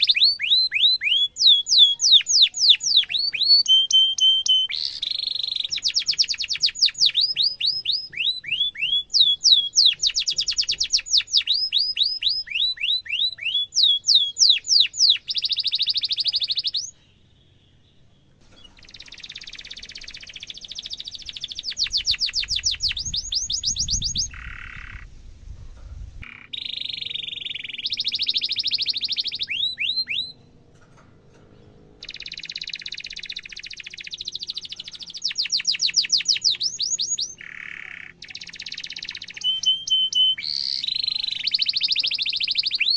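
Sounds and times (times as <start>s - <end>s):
canary singing: 0.0s - 25.3s, 26.2s - 42.9s
low rumble: 21.1s - 26.3s.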